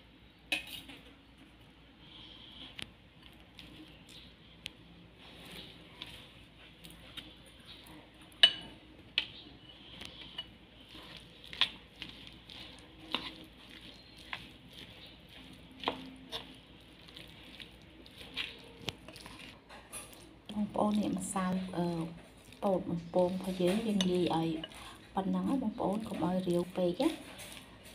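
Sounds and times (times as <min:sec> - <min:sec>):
spoon clinking against bowl: 0:08.4 - 0:08.7
spoon scraping in bowl: 0:09.6 - 0:27.9.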